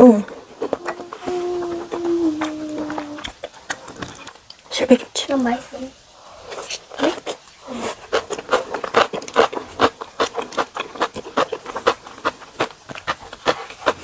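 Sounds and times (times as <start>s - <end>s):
wet chewing: 6.4s - 14.0s.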